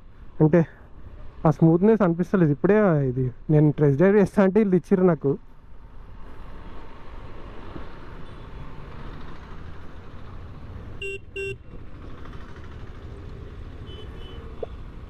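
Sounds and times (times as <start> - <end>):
vehicle horn beeps: 11.0 - 11.6, 13.8 - 14.5.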